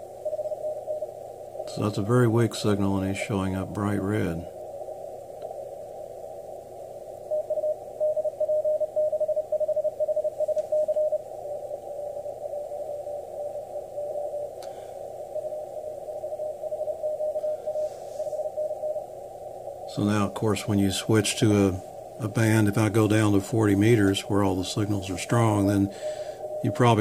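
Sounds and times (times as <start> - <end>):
radio band hiss: 0.0 - 27.0
morse code tone: 7.3 - 11.2, 19.9 - 27.0.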